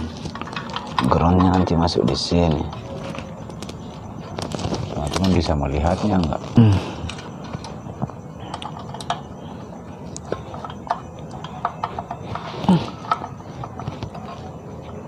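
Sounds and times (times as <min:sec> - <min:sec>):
metal and plastic parts clicking: 0:08.5 - 0:09.3.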